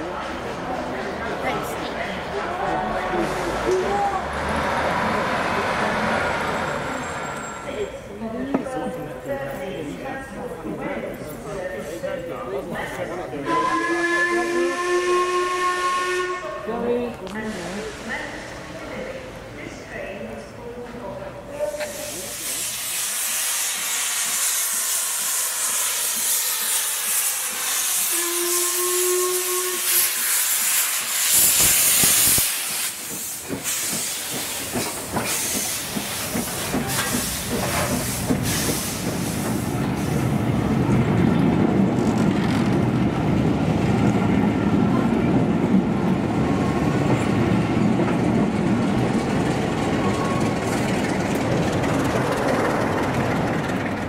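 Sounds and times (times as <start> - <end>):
train rumbling past: 0.0 - 54.0
train steady hiss: 9.8 - 40.8.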